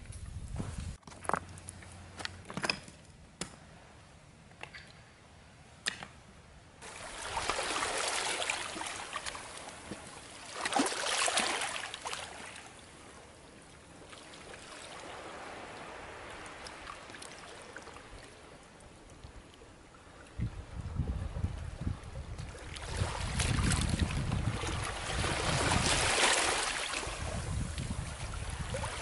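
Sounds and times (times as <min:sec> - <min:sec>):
water splashing and trickling: 0:06.8 - 0:13.2, 0:13.8 - 0:29.0.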